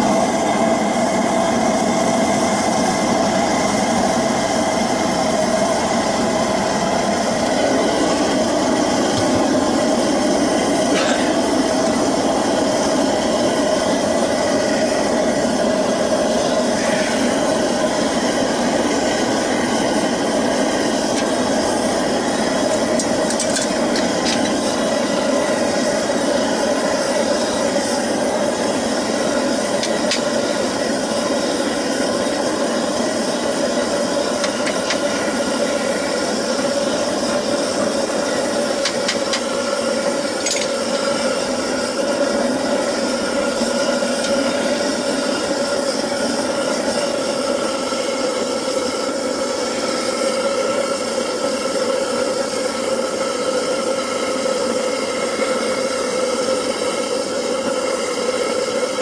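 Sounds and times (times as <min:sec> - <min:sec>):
furnace burner rushing: 0:00.0 - 0:59.0.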